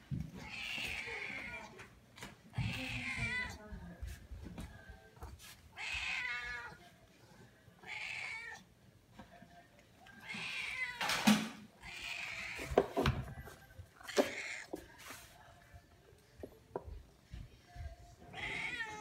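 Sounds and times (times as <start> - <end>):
cat meowing: 0.4 - 1.8, 2.6 - 3.6, 5.7 - 6.8, 7.8 - 8.6, 10.2 - 11.2, 11.8 - 12.8, 14.0 - 14.7, 18.3 - 19.0.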